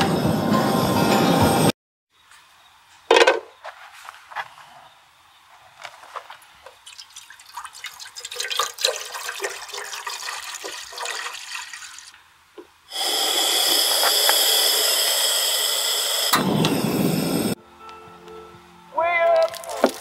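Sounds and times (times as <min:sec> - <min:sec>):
water pouring into saucepan: 0:06.8 - 0:12.1.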